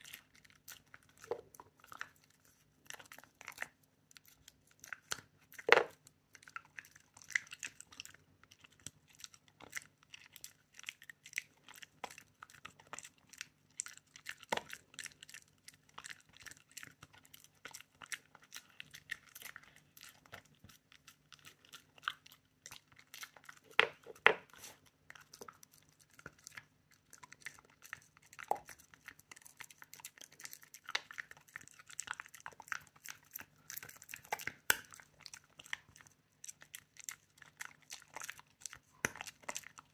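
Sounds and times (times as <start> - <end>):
dog chewing and crunching: 0.0 - 39.9.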